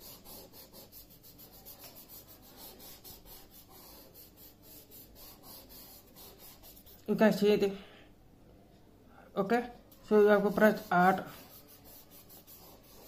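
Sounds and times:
paper rubbing on paper: 0.0s - 7.1s, 10.1s - 13.0s.

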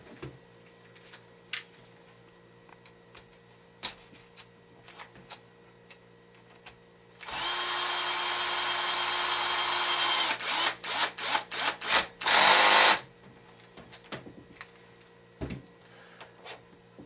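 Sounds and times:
electric screwdriver whining: 7.2s - 13.0s.

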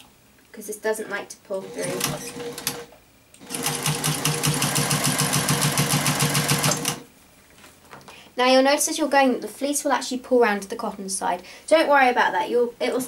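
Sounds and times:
electric sewing machine stitching: 1.6s - 7.1s.

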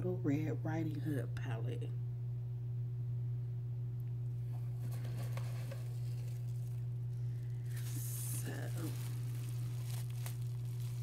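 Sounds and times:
low hum: 0.0s - 11.0s
soft handling sounds and ticks: 4.5s - 11.0s.

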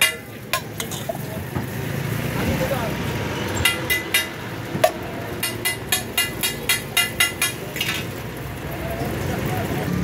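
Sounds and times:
metal utensils clinking on griddle: 0.0s - 1.8s, 3.5s - 8.4s
street stall noise: 0.0s - 10.0s.

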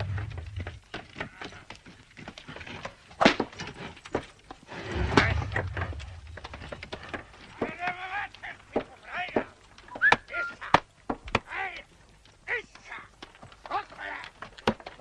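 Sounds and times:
low rumble: 0.0s - 0.8s, 4.7s - 7.2s
wooden cart knocking and rattling: 0.0s - 11.6s, 12.8s - 15.0s
horse hooves: 0.0s - 15.0s.

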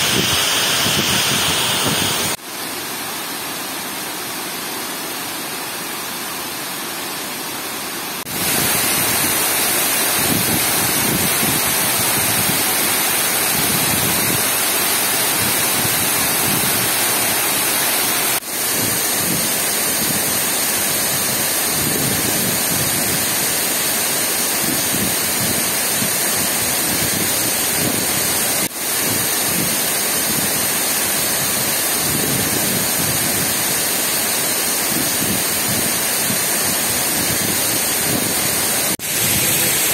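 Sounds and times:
water pouring over dam spillway: 8.3s - 39.9s.

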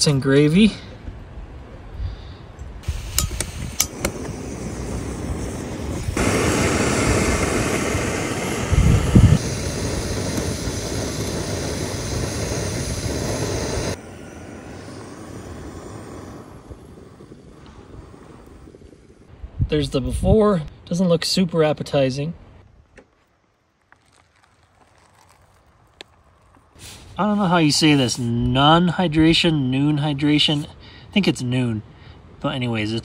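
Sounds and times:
gas burner hissing: 2.8s - 19.3s, 26.7s - 28.4s
stove igniter clicks: 3.0s - 4.4s.

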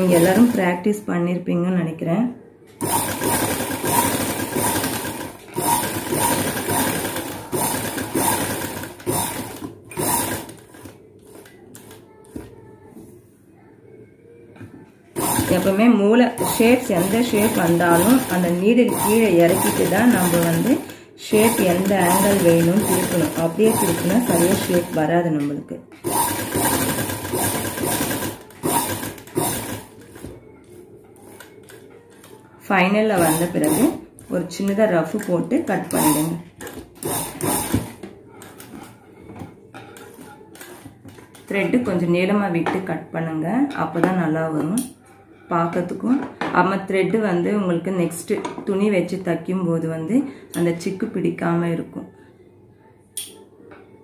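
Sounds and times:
sewing machine stitching: 0.0s - 0.7s, 2.8s - 12.0s, 15.2s - 25.2s, 26.0s - 30.2s, 33.2s - 34.0s, 35.8s - 38.0s.

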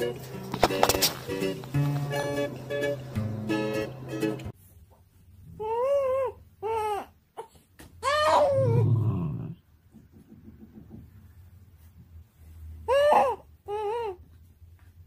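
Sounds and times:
dog whining: 8.0s - 9.6s.

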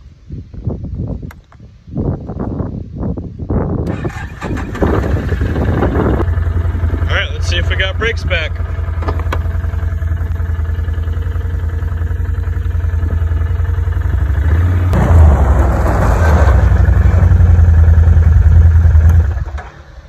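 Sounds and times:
atv engine revving: 3.9s - 19.8s.

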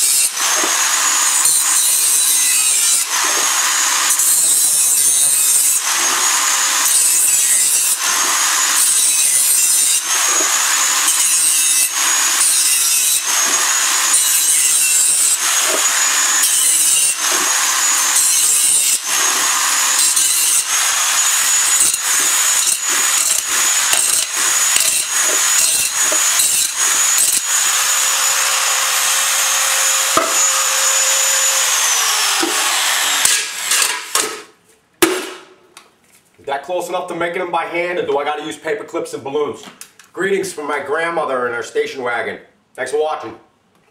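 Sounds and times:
angle grinder cutting metal: 0.0s - 34.5s.

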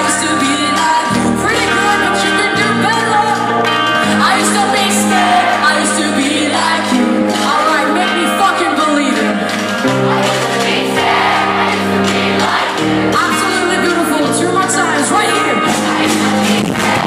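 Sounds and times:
woman singing: 0.0s - 9.3s
live pop-punk band: 0.0s - 17.0s.

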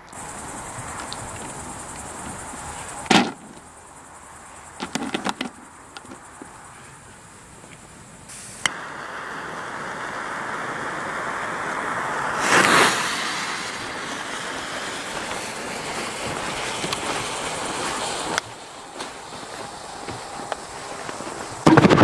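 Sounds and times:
firework fuse hissing: 0.0s - 21.9s
sparking surge: 8.3s - 21.8s.

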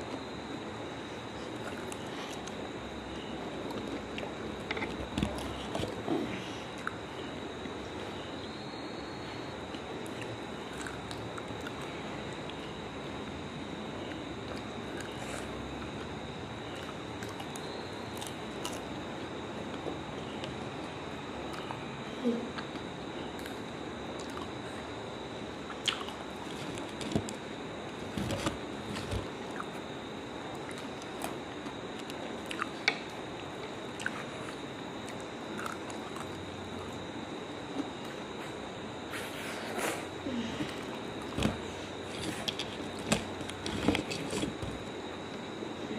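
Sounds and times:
background hiss with high whine: 0.0s - 45.9s
chewing and biting: 14.0s - 19.0s, 25.7s - 27.4s, 28.0s - 29.8s, 30.5s - 37.0s, 40.7s - 45.4s
person chewing: 25.7s - 27.4s, 30.6s - 33.0s, 40.6s - 44.9s.

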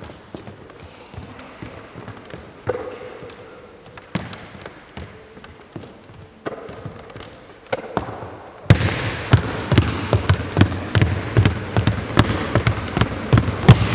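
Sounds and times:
basketball bouncing on hardwood: 6.5s - 13.9s.

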